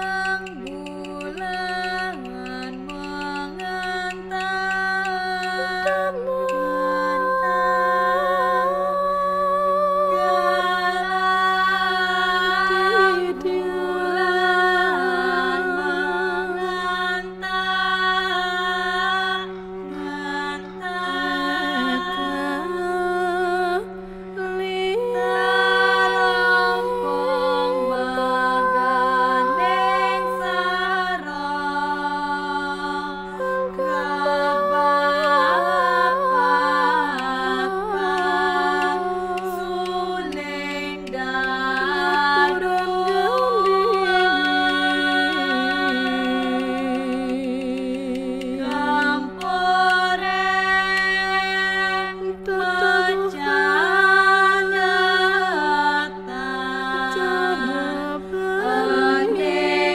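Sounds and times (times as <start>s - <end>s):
slow chant-like melody: 0.0s - 59.9s
steady low drone: 18.2s - 50.4s.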